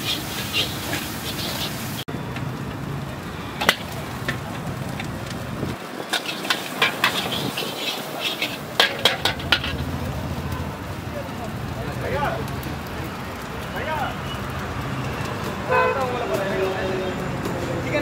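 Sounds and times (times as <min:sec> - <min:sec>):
gas burner rushing: 0:00.0 - 0:02.5, 0:03.5 - 0:11.2
metal ladle clanking in a wok: 0:06.1 - 0:09.9.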